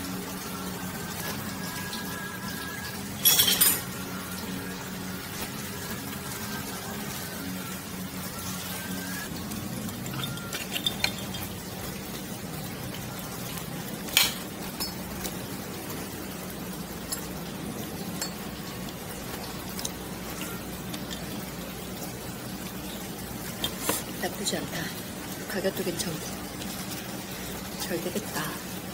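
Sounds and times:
low background hum: 0.0s - 28.9s
cutlery clinking on a plate: 3.2s - 3.8s.

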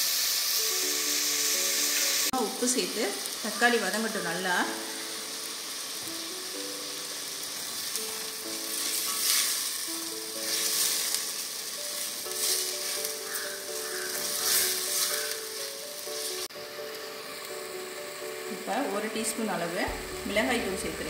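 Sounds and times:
vegetables sizzling in oil: 0.0s - 21.0s
soft background music: 0.6s - 21.0s.

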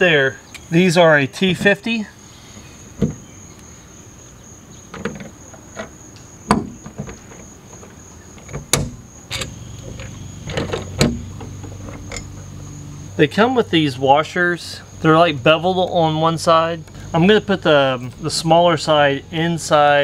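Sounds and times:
crickets chirring: 0.0s - 20.0s
metal clicks and knocks: 4.9s - 12.5s.

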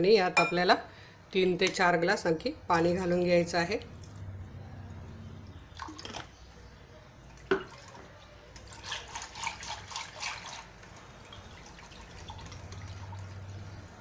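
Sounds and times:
water pouring and splashing into bowl: 5.8s - 6.4s, 7.3s - 14.0s.

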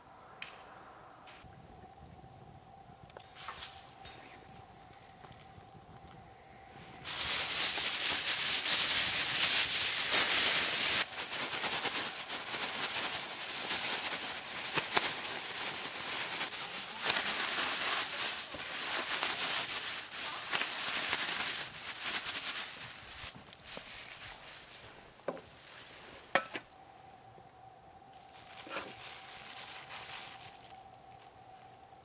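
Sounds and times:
plastic bag crinkling: 7.0s - 24.9s, 28.3s - 31.3s.

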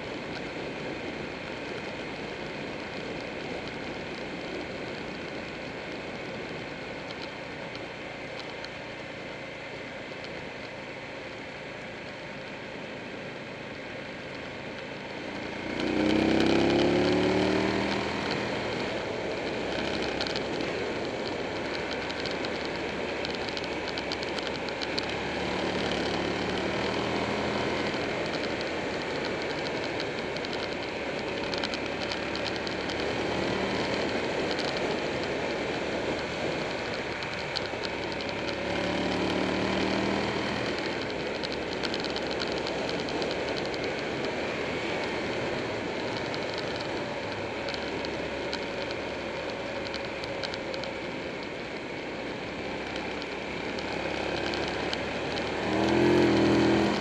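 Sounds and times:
motorcycle engine revving: 15.4s - 50.7s, 53.0s - 57.0s.

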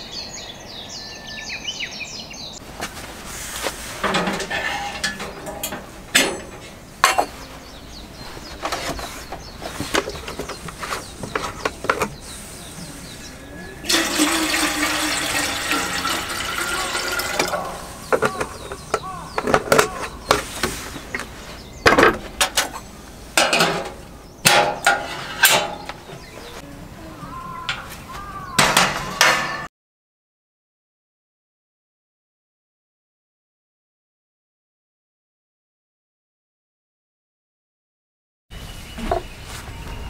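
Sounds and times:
kettle and lid clinking: 4.0s - 7.3s, 13.9s - 18.8s
water pouring into metal kettle: 13.9s - 18.0s.

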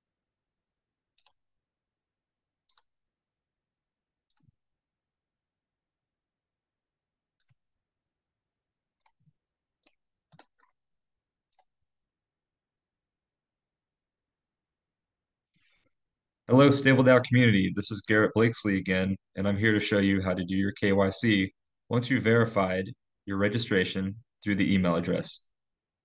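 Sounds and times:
computer mouse clicks: 1.1s - 1.4s, 2.6s - 2.9s, 4.2s - 4.6s, 7.4s - 7.6s, 9.0s - 10.8s, 11.5s - 11.7s.

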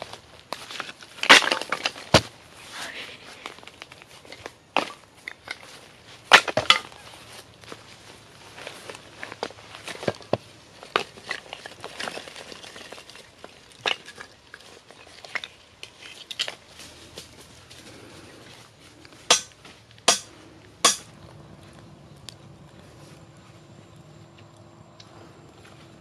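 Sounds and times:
dry leaves rustling: 0.0s - 24.5s
charred wood clinking: 8.9s - 17.4s, 19.0s - 22.8s.

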